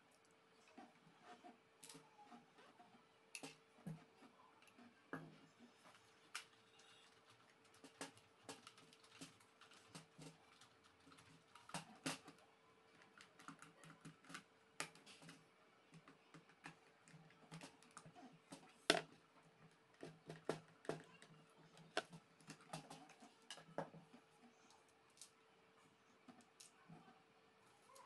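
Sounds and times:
faint steady hum: 0.0s - 28.0s
plastic parts knocking: 13.0s - 19.2s, 20.0s - 24.2s.

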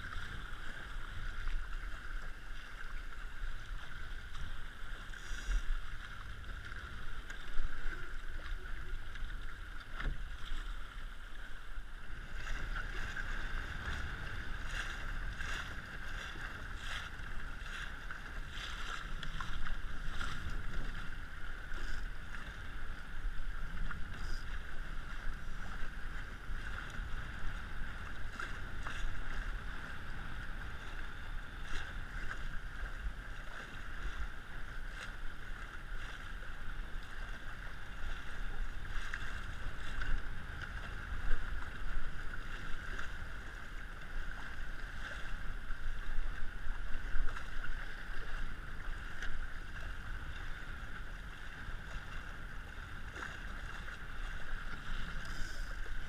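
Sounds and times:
water rushing along hull: 0.0s - 56.0s
wind buffeting microphone: 12.1s - 35.0s.

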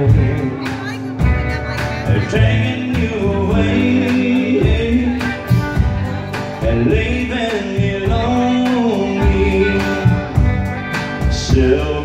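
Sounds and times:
acoustic guitar: 0.0s - 12.0s
drums: 0.0s - 12.0s
electric guitar: 0.0s - 12.0s
upright bass: 0.0s - 12.0s.

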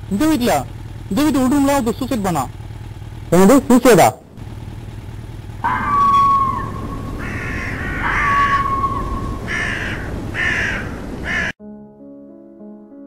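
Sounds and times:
crows cawing: 5.6s - 11.6s.

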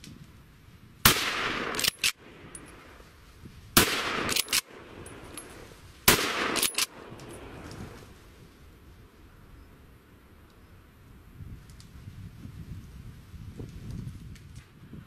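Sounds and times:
gunshots: 1.0s - 2.3s, 3.8s - 5.3s, 6.0s - 7.6s
rolling gunshot echo: 1.1s - 2.4s, 3.8s - 5.3s, 6.1s - 7.2s.

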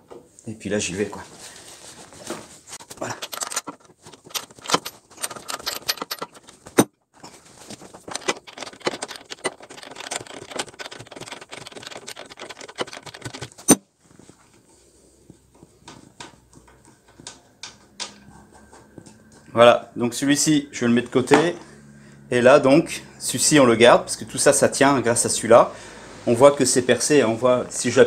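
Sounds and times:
socket wrench clicking and rattling: 3.0s - 6.9s, 8.0s - 13.8s
nut turned by hand clicks: 8.1s - 13.8s.

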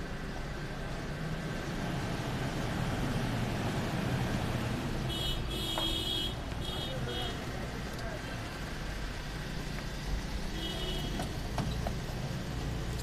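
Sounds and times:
car engine rumbling past: 0.0s - 5.1s.

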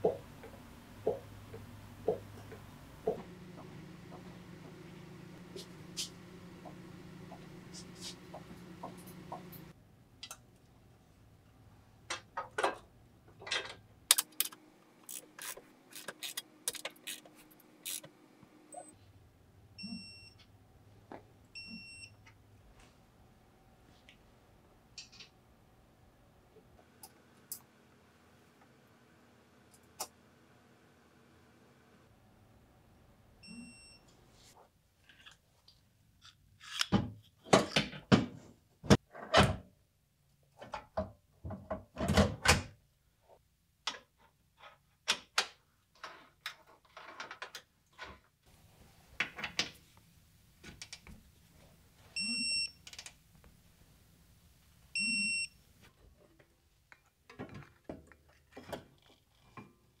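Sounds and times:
torque wrench beeping: 17.8s - 18.1s.

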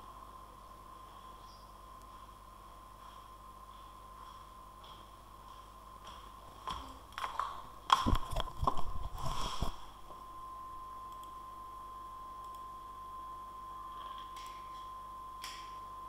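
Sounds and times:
faint high whine: 0.0s - 16.0s
knocks and clicks at microphone: 7.2s - 9.0s.

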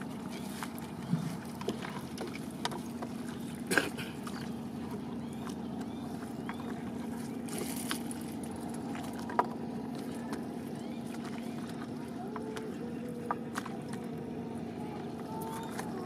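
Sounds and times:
low hum: 0.0s - 16.0s
water: 0.0s - 16.0s.

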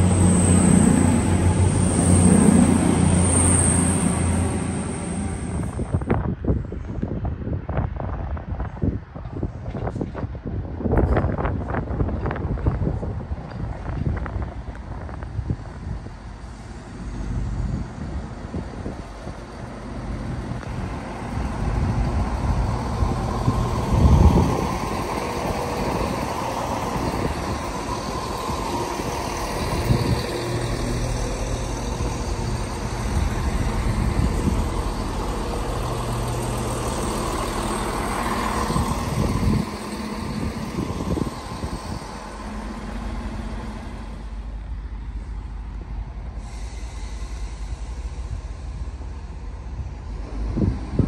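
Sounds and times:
diesel train engine running: 0.0s - 6.5s, 11.4s - 51.0s.

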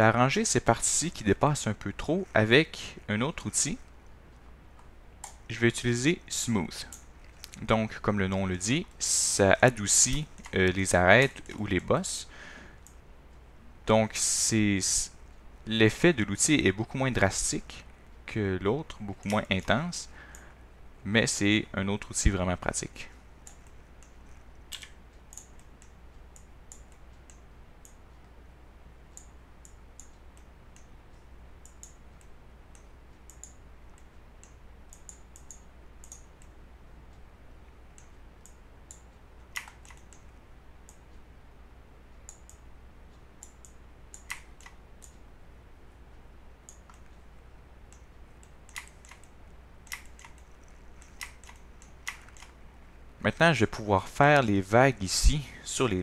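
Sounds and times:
low steady hum: 0.0s - 56.0s
mouse and keyboard clicks: 38.0s - 40.3s, 47.9s - 52.6s.

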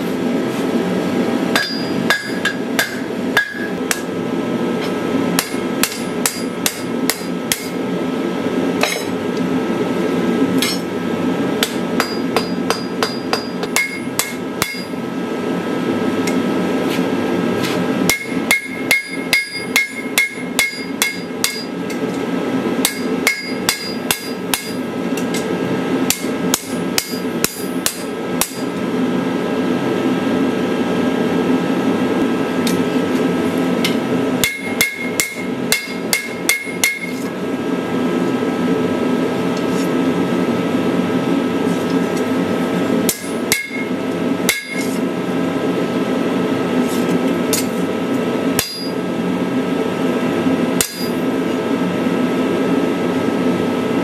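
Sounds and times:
hammer striking steel on anvil: 1.5s - 4.1s, 4.8s - 7.8s, 8.8s - 9.1s, 10.6s - 10.9s, 11.6s - 15.0s, 18.1s - 22.0s, 22.8s - 25.5s, 26.1s - 28.7s, 33.8s - 37.3s, 43.1s - 45.0s, 48.6s - 49.0s, 50.8s - 51.2s.

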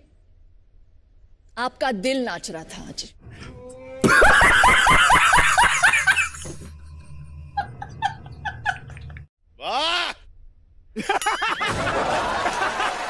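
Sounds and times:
man laughing hard: 4.0s - 6.5s, 11.0s - 13.0s.

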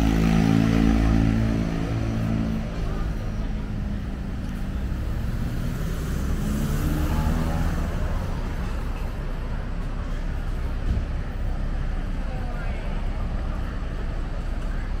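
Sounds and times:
vehicle passing: 0.0s - 9.9s
vehicle engines rumbling: 0.0s - 15.0s.

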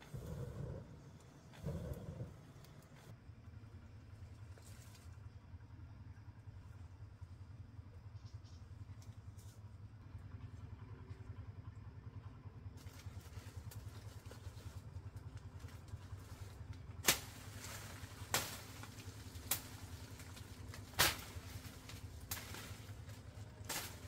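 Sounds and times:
low rumble: 0.0s - 24.0s
twigs snapping: 17.0s - 24.0s.

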